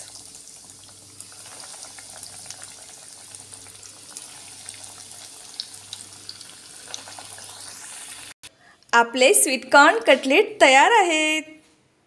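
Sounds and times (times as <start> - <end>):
food deep-frying in hot oil: 0.0 - 8.4.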